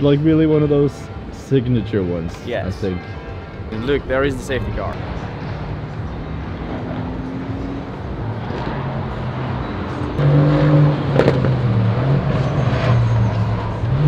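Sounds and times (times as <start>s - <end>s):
car engine low drone: 2.9s - 14.0s.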